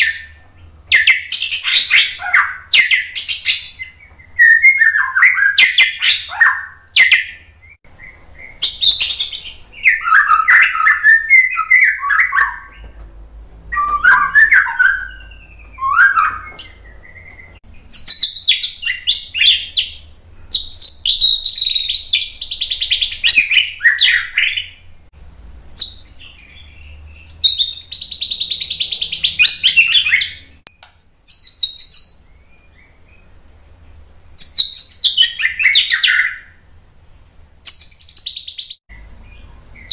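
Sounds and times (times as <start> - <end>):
bird singing whistles and trills: 0.0 - 13.0, 13.7 - 24.9, 25.8 - 33.3, 34.4 - 36.6, 37.6 - 39.9.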